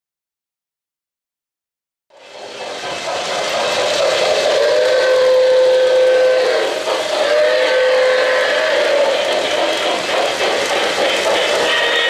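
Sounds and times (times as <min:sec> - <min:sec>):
model train running on track: 0:02.1 - 0:12.0
model train steam whistle: 0:04.0 - 0:12.0.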